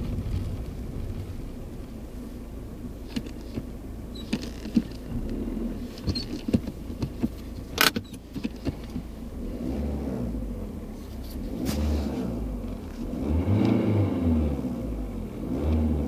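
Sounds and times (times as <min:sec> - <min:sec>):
diesel engine low rumble: 0:00.0 - 0:16.0
sharp clicks and rattles: 0:03.0 - 0:09.1.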